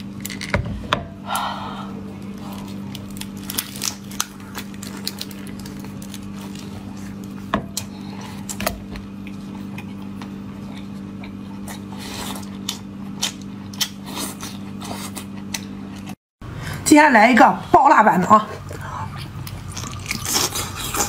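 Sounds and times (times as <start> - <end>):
low electrical hum: 0.0 - 21.0
shellfish shell crunching in mouth: 2.6 - 7.3, 19.4 - 21.0
wet chewing: 19.1 - 21.0.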